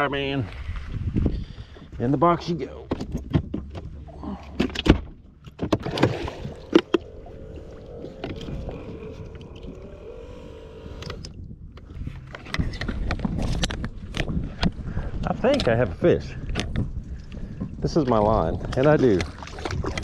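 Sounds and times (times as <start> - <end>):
electric motor whine: 6.4 - 11.4.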